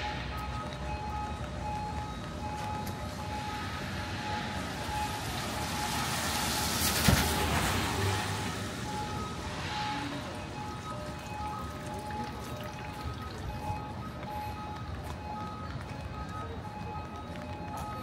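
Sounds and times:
vehicle passing by: 3.4s - 11.1s.

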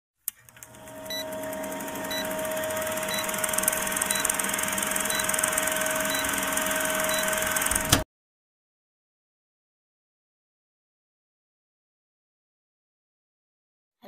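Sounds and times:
film projector whirring: 0.3s - 8.0s
steady hum: 0.4s - 8.0s.

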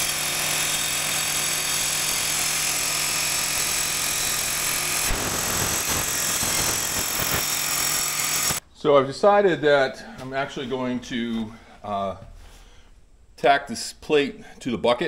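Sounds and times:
circular saw cutting steel: 0.0s - 8.6s.

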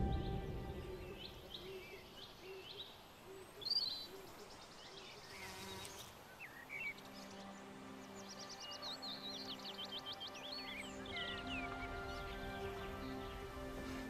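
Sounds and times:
small birds chirping: 0.0s - 14.0s
faint insect buzz: 5.1s - 7.4s.

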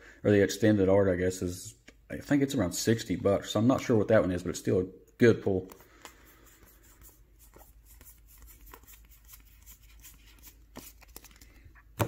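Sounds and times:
cards and wrappers rustling: 5.5s - 12.0s.

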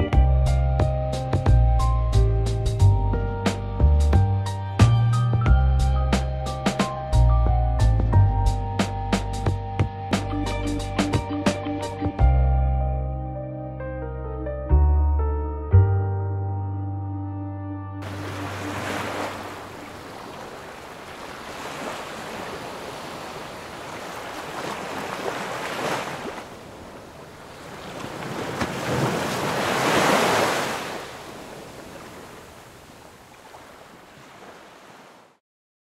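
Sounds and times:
sea water splashing: 18.0s - 35.3s.

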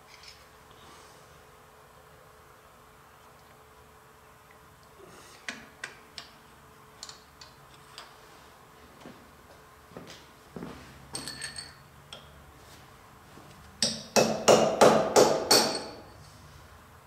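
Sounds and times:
hammer striking steel: 13.8s - 16.0s.

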